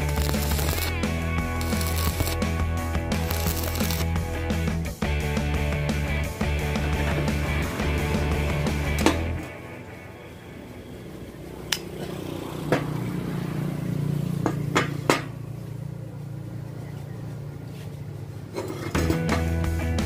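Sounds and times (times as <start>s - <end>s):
rock guitar music: 0.0s - 10.5s, 19.1s - 20.0s.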